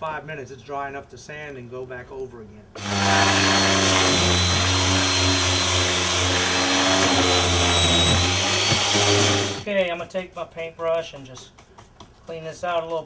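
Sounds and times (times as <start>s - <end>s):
angle grinder sanding: 2.8s - 9.7s.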